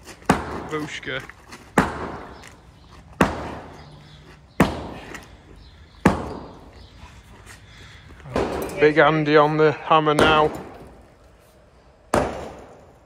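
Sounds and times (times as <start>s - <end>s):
sledgehammer striking concrete floor: 6.0s - 6.6s, 12.1s - 13.0s.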